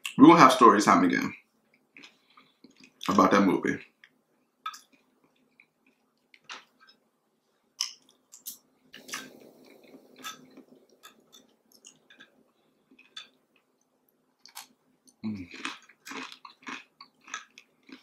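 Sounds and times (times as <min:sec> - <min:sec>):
chewing and mouth sounds: 0:01.9 - 0:03.2, 0:07.8 - 0:18.0.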